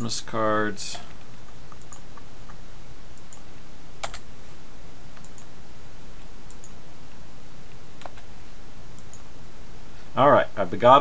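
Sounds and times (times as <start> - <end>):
steady background hiss: 0.0 - 11.0
computer keyboard keystrokes: 4.0 - 4.2.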